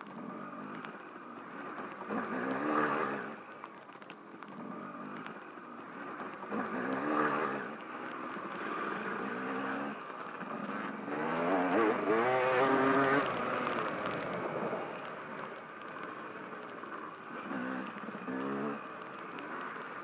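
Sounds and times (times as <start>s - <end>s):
dirt bike engine revving: 0.2s - 3.4s, 4.6s - 20.0s.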